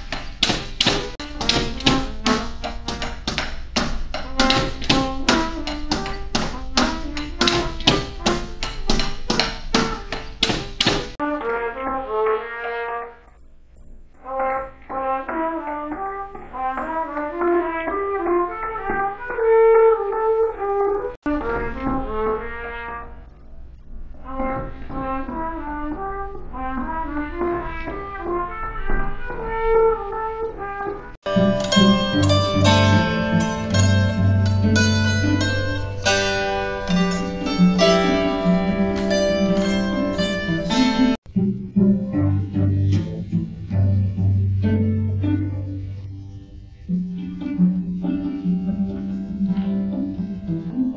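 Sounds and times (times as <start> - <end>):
held cello notes: 0.0 - 13.0, 21.2 - 50.9
trumpet melody: 1.1 - 10.4, 11.1 - 13.3, 14.2 - 23.4, 24.3 - 41.2
plucked harp notes: 31.3 - 50.9.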